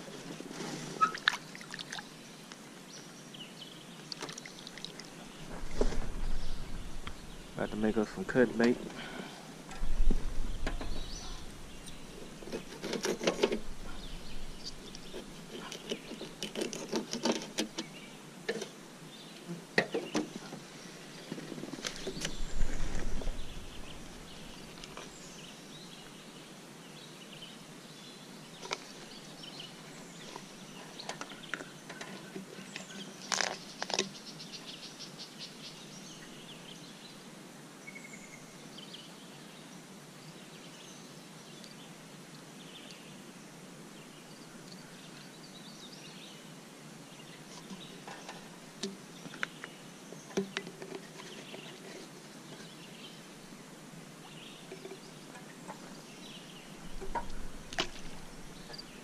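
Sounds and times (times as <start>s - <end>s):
faint birds chirping: 0.0s - 59.0s
gear clicks and rustles in a boat: 11.8s - 18.7s
insects chirping: 51.5s - 59.0s.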